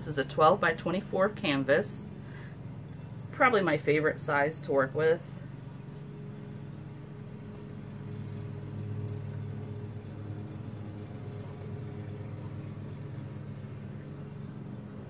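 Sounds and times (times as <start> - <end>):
lawn mower engine running: 0.9 - 15.0.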